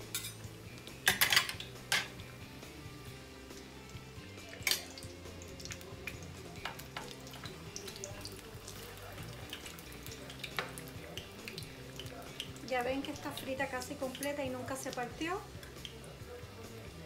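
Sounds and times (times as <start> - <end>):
metal utensils clicking on pan: 0.0 - 2.2, 4.5 - 8.1, 8.7 - 14.9
food frying in oil: 0.0 - 17.0.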